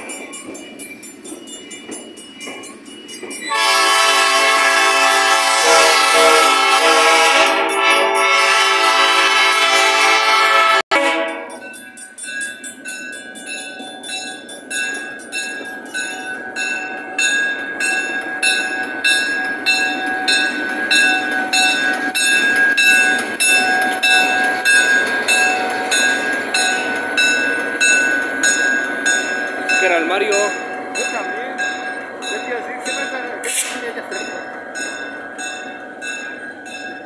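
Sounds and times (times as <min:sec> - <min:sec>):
freight train rolling: 0:00.0 - 0:37.0
train horn blast: 0:03.5 - 0:11.6
bell ringing: 0:11.3 - 0:37.0.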